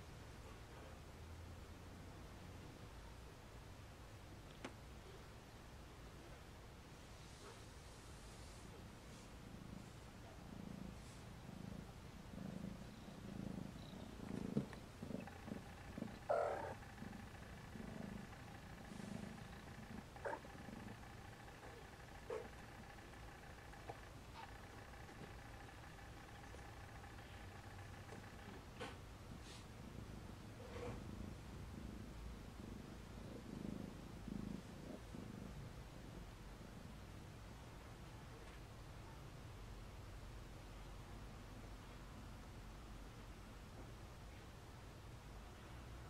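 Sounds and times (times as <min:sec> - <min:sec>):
cat purring: 0:07.1 - 0:39.2.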